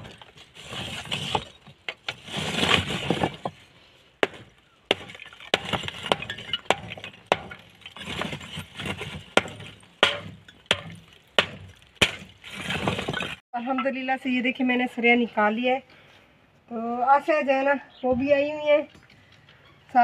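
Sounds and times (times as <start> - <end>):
scraping: 0.0 - 13.4
brick chunks clinking: 4.2 - 13.4.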